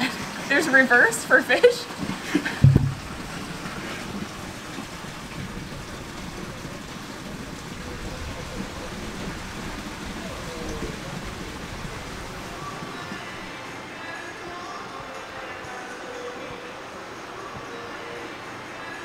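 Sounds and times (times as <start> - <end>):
water hissing: 2.2 - 13.7.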